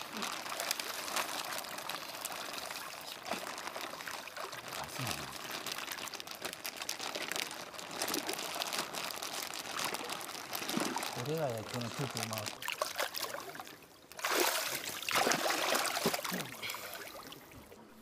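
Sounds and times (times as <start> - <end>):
plastic bag crinkling: 0.0 - 13.7
water pouring and sloshing: 0.0 - 18.0.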